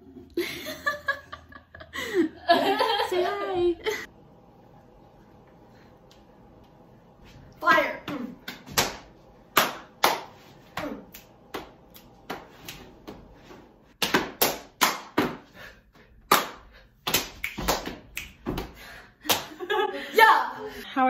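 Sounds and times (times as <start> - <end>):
hand claps and slaps: 8.1 - 13.2, 13.9 - 15.5, 16.2 - 19.7.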